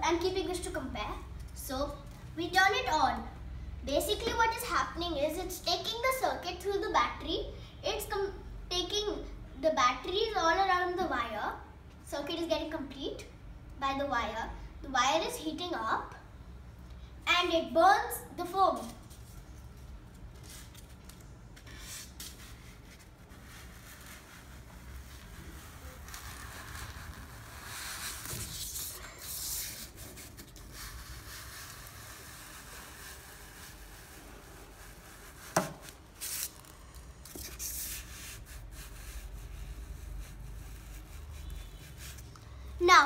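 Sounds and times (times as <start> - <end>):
styrofoam rubbing and scraping: 20.4 - 42.3.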